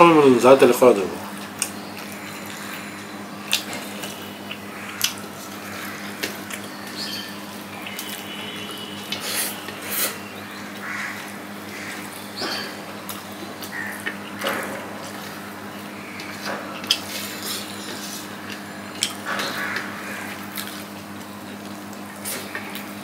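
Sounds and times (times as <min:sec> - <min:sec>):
steady low hum: 0:00.0 - 0:23.0
chewing: 0:01.4 - 0:07.0, 0:16.1 - 0:22.9.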